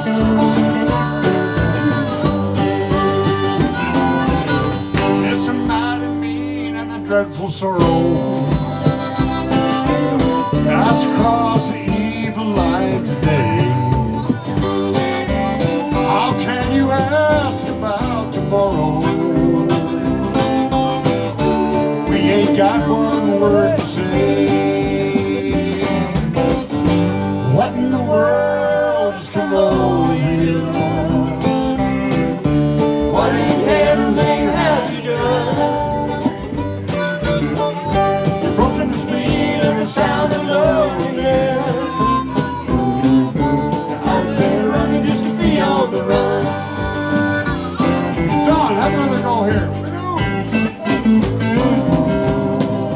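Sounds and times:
person singing: 0.0 - 15.1, 15.8 - 20.5, 21.9 - 26.3, 27.4 - 31.8, 33.0 - 49.3, 50.8 - 52.9
electric bass: 0.0 - 52.9
electric guitar: 0.0 - 52.9
harmonica: 0.0 - 52.9
strummed acoustic guitar: 0.0 - 52.9.

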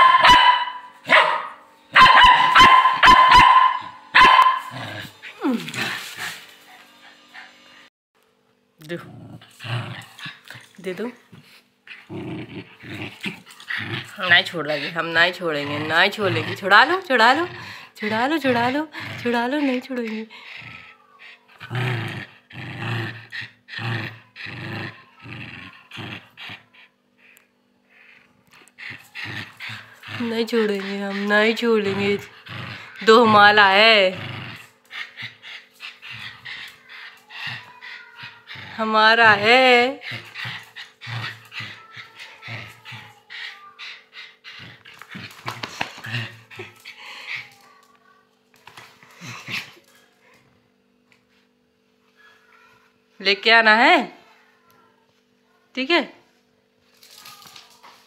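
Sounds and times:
puppy yapping: 0.0 - 4.8
small dog growling in play: 4.6 - 7.5, 8.8 - 47.9, 48.6 - 50.5.

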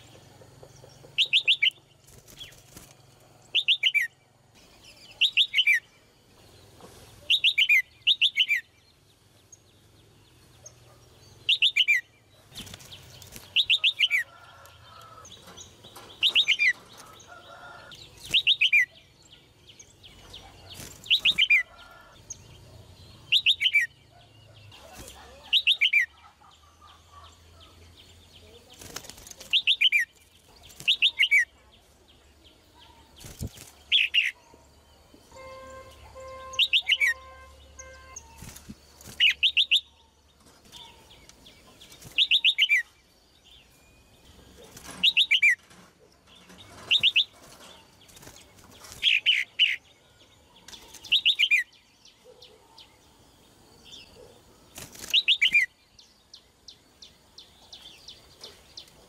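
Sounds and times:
wing flutters in a cage: 0.0 - 4.1, 9.9 - 18.9, 19.8 - 26.0, 28.0 - 32.0, 33.0 - 34.4, 35.5 - 42.8, 44.3 - 49.8, 50.6 - 51.6, 53.8 - 55.7
bird calling: 3.5 - 4.2, 35.3 - 38.5.

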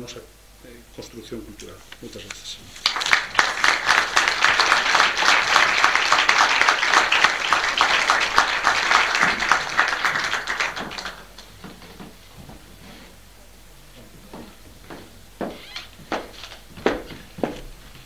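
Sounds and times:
audience applauding: 2.7 - 11.6.

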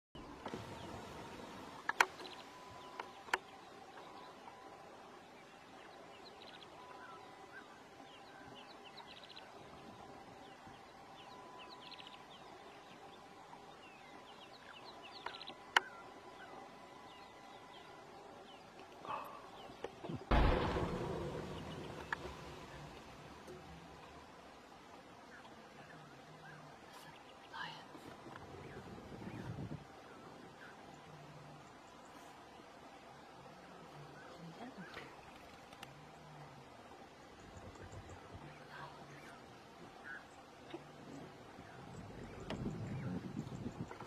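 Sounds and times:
faint steady tone: 0.2 - 44.0
wild birds chirping: 0.2 - 44.0
loud bump: 20.3 - 23.6.

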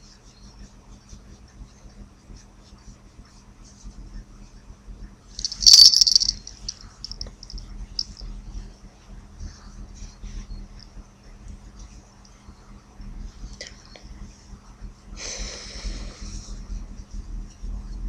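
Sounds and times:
small collar bell jingling: 5.4 - 8.2.

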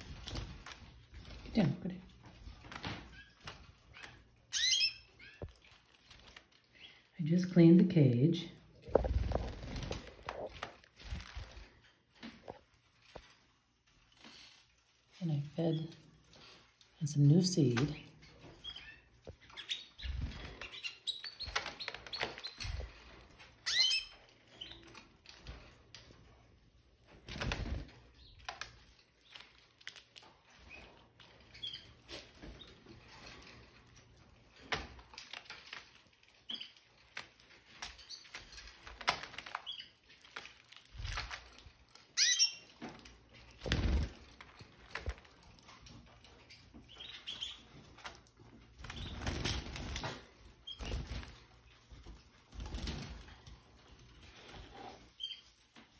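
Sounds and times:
birds fluttering wings: 8.9 - 11.9, 27.0 - 31.0, 42.8 - 45.6, 47.3 - 55.4.

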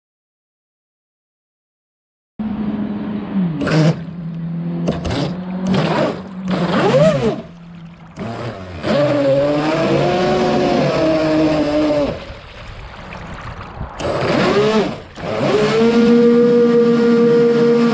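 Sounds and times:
boat motor revving: 2.4 - 12.4, 13.6 - 17.9.

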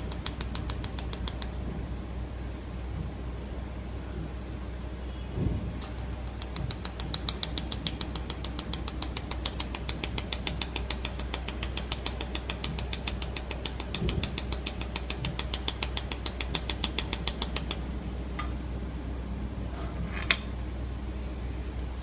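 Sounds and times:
low machine hum: 0.0 - 22.0
laser welder ticking: 6.3 - 17.8.

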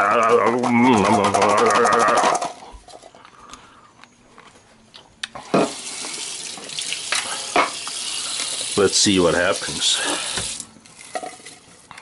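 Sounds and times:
man's drawn-out vocal: 0.0 - 2.4.

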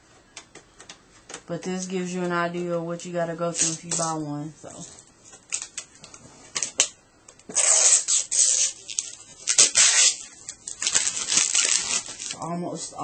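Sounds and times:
crackly plastic peeling: 5.3 - 12.4.

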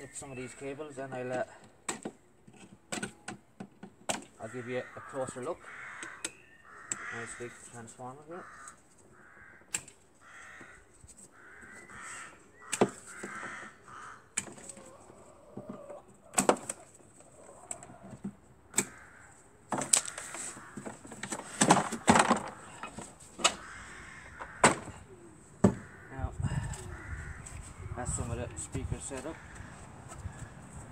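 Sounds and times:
crows cawing: 4.3 - 16.0, 16.7 - 28.0, 29.0 - 30.6
organ parts knocking and rattling: 19.7 - 23.7, 24.3 - 25.0.

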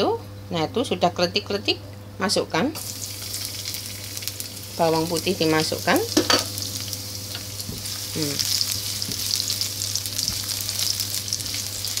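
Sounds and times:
garlic sizzling in hot oil: 2.8 - 12.0.

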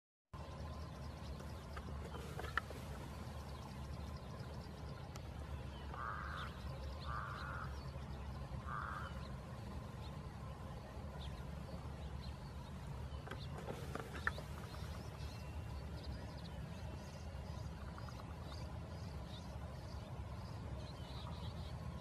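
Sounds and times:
steady low rumble: 0.4 - 22.0
harsh animal calls: 5.9 - 7.8, 8.6 - 9.3.

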